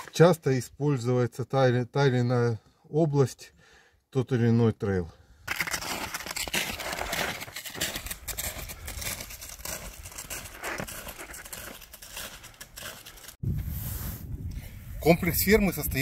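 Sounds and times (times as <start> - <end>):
footsteps crunching in snow: 5.5 - 14.3.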